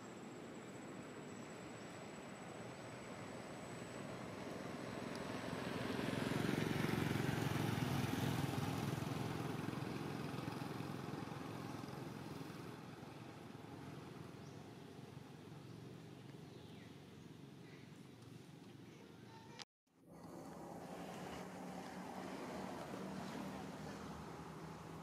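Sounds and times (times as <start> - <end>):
motor vehicle passing: 4.0 - 17.7, 20.1 - 25.0.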